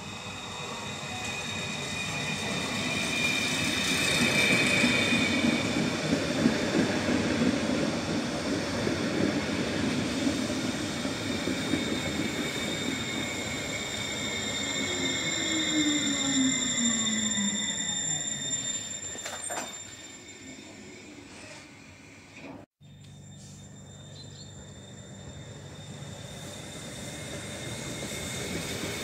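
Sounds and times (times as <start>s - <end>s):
high-pitched whines and squeals: 0.0s - 7.3s, 9.6s - 29.0s
train wheels rumbling on rails: 0.0s - 20.1s, 23.3s - 29.0s
falling brake whine: 11.3s - 29.0s.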